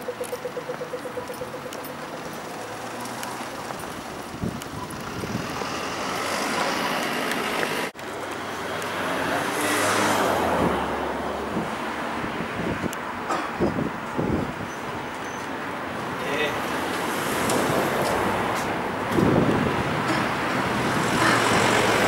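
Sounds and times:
cars driving by: 0:00.0 - 0:22.0.

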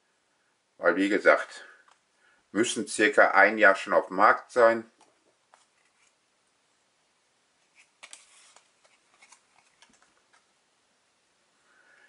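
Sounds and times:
trading cards sliding and flipping: 0:05.5 - 0:06.2, 0:07.6 - 0:10.5.

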